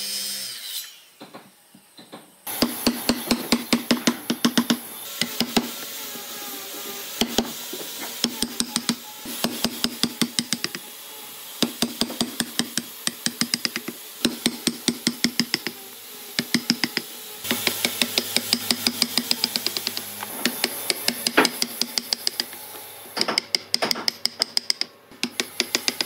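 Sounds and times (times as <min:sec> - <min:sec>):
chisel knocking into wood: 0:11.6 - 0:15.8, 0:16.4 - 0:22.5.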